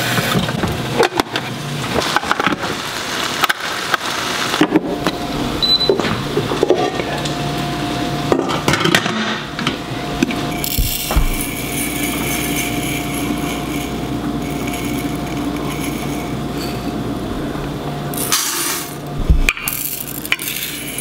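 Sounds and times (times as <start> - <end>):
steady hum: 4.5 - 21.0
rice pouring into metal cup: 10.6 - 16.9, 18.1 - 19.1, 19.7 - 21.0.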